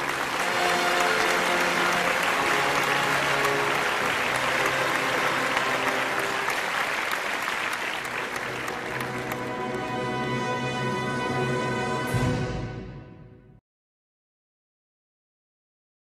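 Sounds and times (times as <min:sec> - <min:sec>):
audience applauding: 0:00.0 - 0:10.6
music playing: 0:00.0 - 0:13.6.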